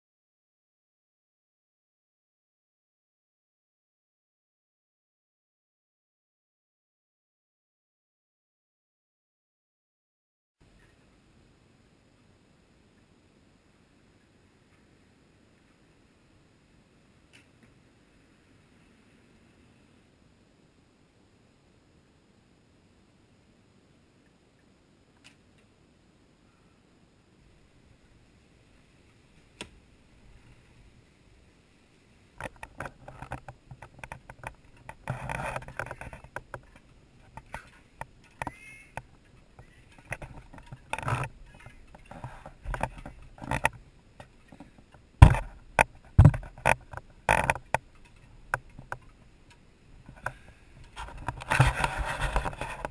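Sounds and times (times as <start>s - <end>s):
footsteps: 32.4s - 49.1s, 50.0s - 52.9s
loud thumps: 45.2s - 47.7s
camera handling rustle: 50.2s - 52.9s.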